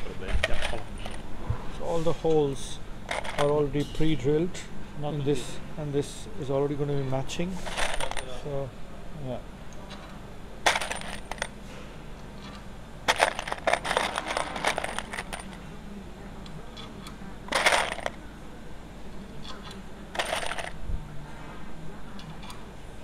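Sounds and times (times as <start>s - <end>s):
metal parts clinking: 0.3s - 1.3s, 3.1s - 4.1s, 7.6s - 8.4s, 10.6s - 11.6s, 13.1s - 15.6s, 17.5s - 18.2s, 20.1s - 20.8s.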